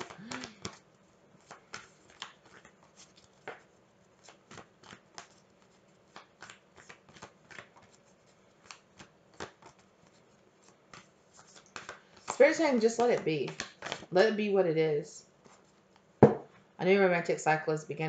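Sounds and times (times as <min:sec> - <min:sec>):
cards being shuffled: 0:00.0 - 0:14.1.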